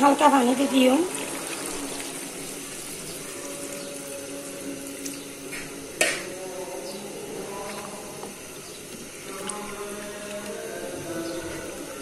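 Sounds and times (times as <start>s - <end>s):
water poured into pot: 0.6s - 5.7s
sharp knock: 6.0s - 6.3s.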